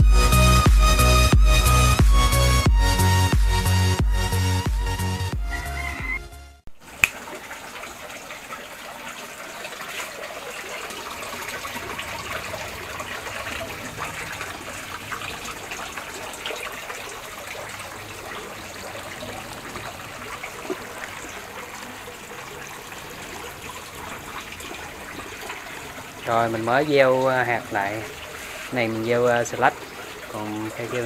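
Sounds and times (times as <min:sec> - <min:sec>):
water trickling and splashing: 0:06.7 - 0:31.0.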